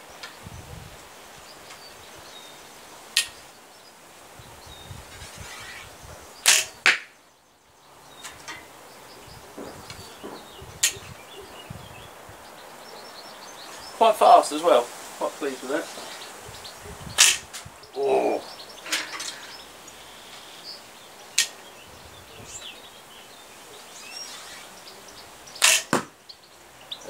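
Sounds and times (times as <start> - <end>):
bow string snap: 3.2 - 3.4, 5.2 - 7.1, 17.2 - 17.4, 21.4 - 21.6, 25.6 - 26.1
sharp clicks: 3.2 - 3.4, 21.4 - 21.6
arrow hitting target: 5.1 - 7.1, 17.2 - 17.5, 25.6 - 26.1.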